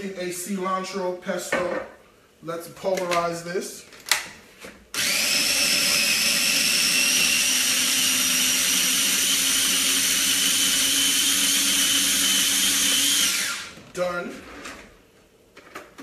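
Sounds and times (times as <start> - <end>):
food processor running: 5.0 - 13.8.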